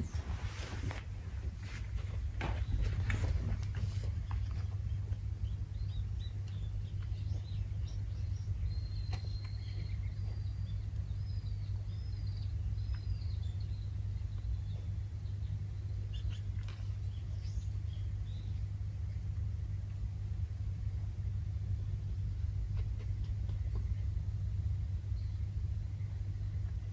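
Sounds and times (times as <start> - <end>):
low outdoor rumble: 0.0 - 26.9
small bird chirps: 4.1 - 20.4.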